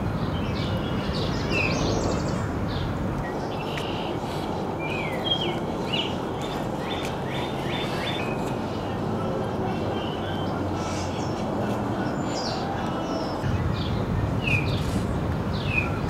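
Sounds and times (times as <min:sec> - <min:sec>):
small birds chirping: 0:00.2 - 0:16.0.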